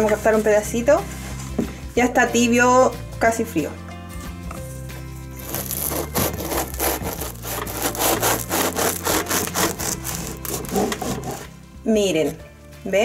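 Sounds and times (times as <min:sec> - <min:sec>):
bread knife sawing crusty bread: 0:05.4 - 0:11.5.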